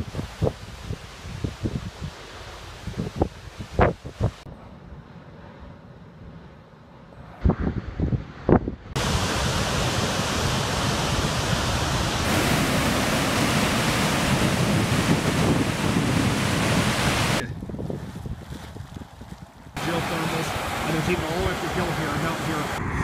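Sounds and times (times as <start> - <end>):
wind thumps on microphone: 0.0 - 4.5, 7.3 - 19.9, 22.8 - 23.0
waterfall roaring: 9.0 - 17.4, 19.8 - 22.8.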